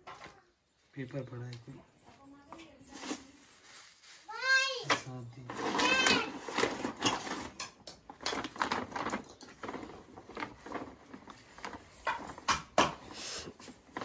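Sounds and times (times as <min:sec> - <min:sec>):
plastic packet crinkling: 0:02.9 - 0:12.7.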